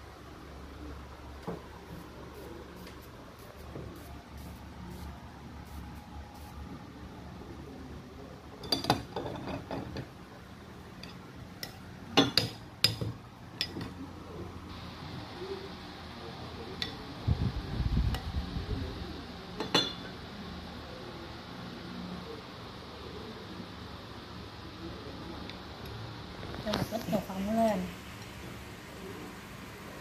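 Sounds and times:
spoon clinking on ceramic bowls: 0:19.6 - 0:20.1.

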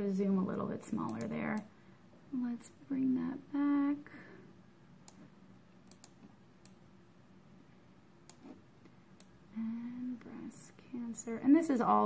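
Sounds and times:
computer mouse clicks: 0:01.0 - 0:01.7, 0:05.0 - 0:06.8, 0:08.2 - 0:08.6.

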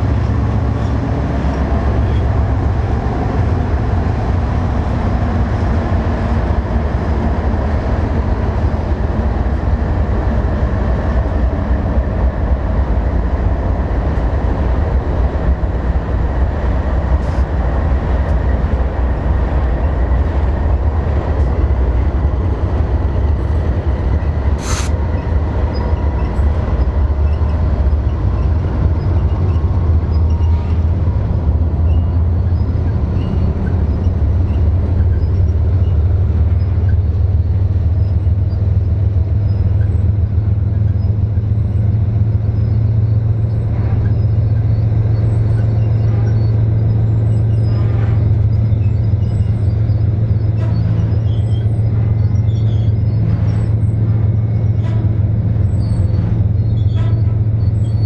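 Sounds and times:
train wheels rumbling on rail: 0:00.0 - 0:58.0
high wheel squeal: 0:24.1 - 0:31.0, 0:31.6 - 0:58.0.

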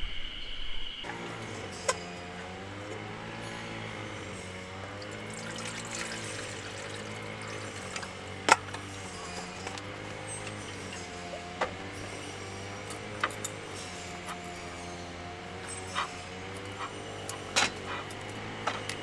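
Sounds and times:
metal cookware clinking: 0:04.2 - 0:19.0.

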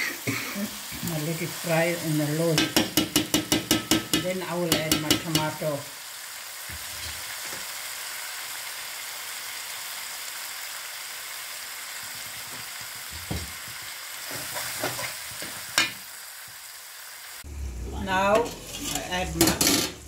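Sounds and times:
meat sizzling in a pot: 0:00.0 - 0:20.0
metal spoon scraping a pot: 0:18.3 - 0:20.0.

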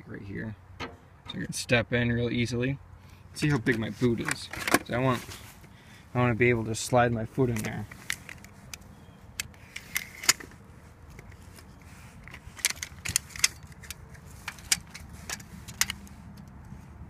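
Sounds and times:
tape measure clicking and rattling: 0:12.2 - 0:16.7.

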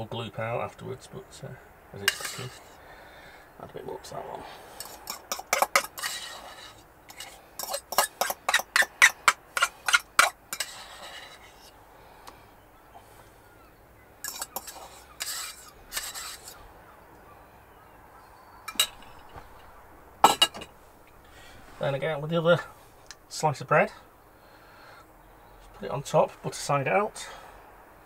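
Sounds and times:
spoon scraping and clinking on bowl: 0:02.0 - 0:02.7, 0:04.8 - 0:11.7, 0:14.2 - 0:16.6, 0:18.7 - 0:19.4.

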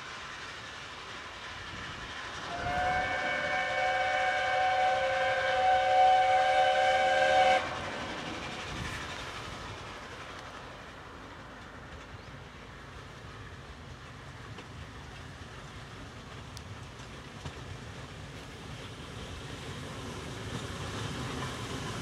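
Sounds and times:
train running: 0:00.0 - 0:22.0
steam locomotive whistle: 0:02.4 - 0:08.2.

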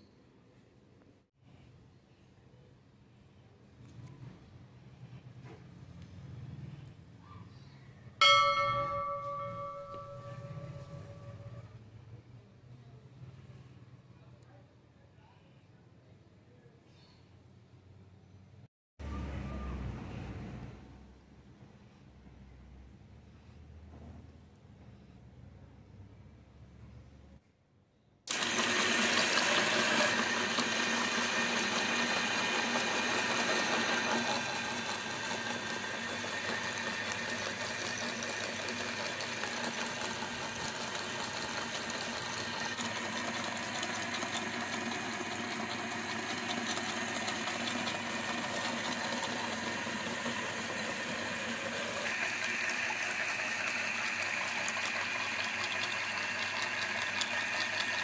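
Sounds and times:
grapes crackling in grinder: 0:28.3 - 0:58.0
meat grinder motor running: 0:28.3 - 0:58.0.

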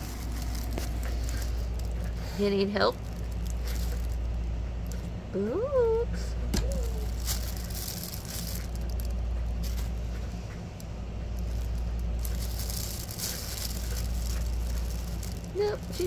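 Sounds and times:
nylon fabric rustling: 0:00.0 - 0:04.3, 0:06.7 - 0:10.1, 0:11.4 - 0:16.0
steady low hum: 0:00.0 - 0:16.0.

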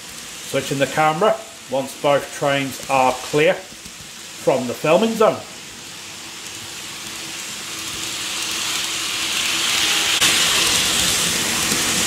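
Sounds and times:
model train wheels rolling on rail: 0:00.0 - 0:12.0.

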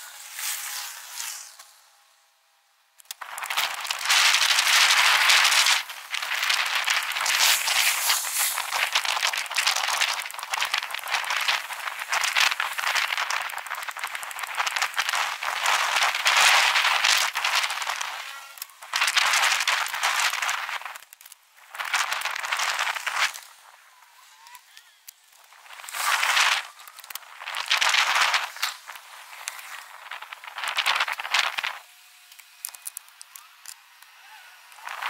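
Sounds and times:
bicycle rattling over street: 0:03.1 - 0:23.7.

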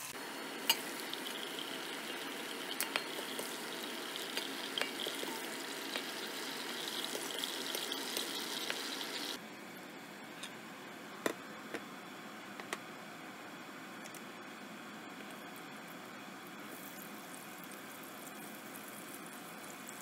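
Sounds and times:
hot oil sizzling: 0:00.0 - 0:09.4, 0:16.6 - 0:20.0.

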